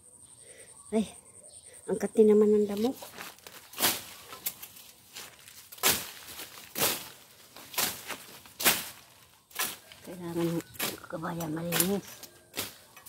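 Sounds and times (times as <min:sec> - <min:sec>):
rustling swishes through brush: 0:02.8 - 0:12.9.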